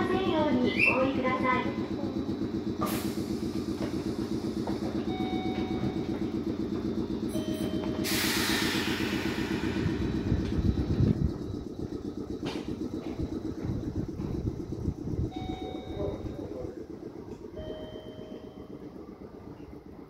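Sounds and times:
low rumble: 0.0 - 20.0
train equipment pulsing drone: 0.0 - 20.0
air hiss release: 2.8 - 3.5, 8.0 - 10.4.

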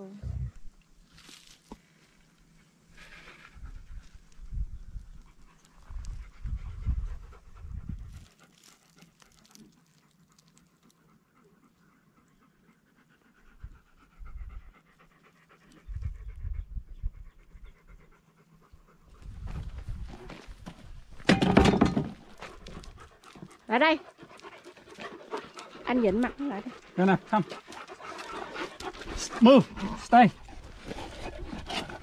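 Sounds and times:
dog panting: 5.1 - 19.3, 22.4 - 32.0.

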